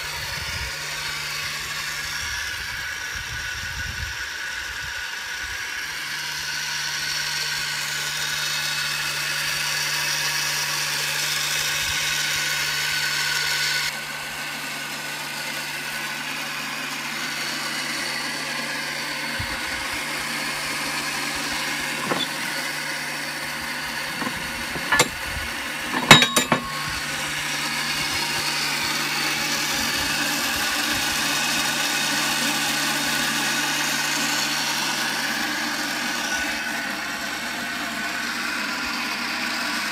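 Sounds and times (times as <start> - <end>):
pressure washer humming: 5.7 - 39.9
sharp knocks: 24.1 - 25.2, 25.8 - 27.0.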